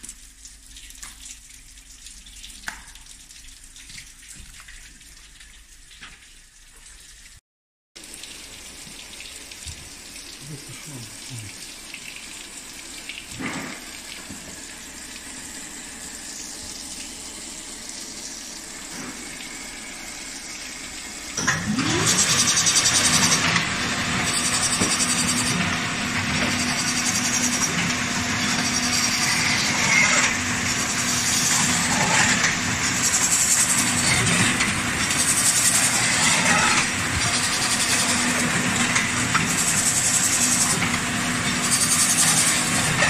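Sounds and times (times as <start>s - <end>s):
running water hiss: 8.0s - 21.4s
fish filleting machine running: 12.4s - 43.0s.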